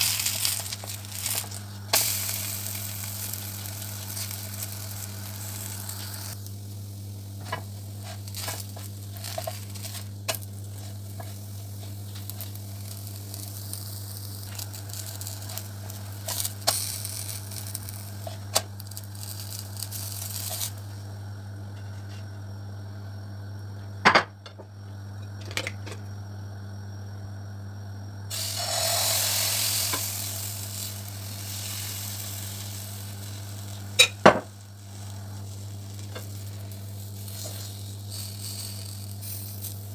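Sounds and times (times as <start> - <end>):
batter sizzling in a pan: 0.0 - 22.6, 28.1 - 39.9
low hum: 0.0 - 24.0.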